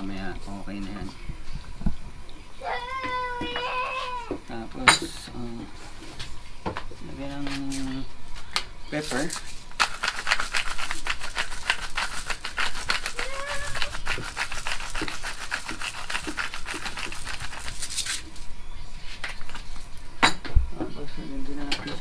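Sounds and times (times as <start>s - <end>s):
pepper grinder grinding: 9.1s - 18.2s.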